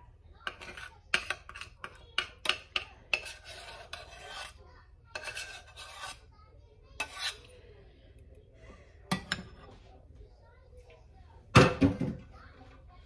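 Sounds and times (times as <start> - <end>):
spoon scraping a saucepan: 0.4 - 7.7.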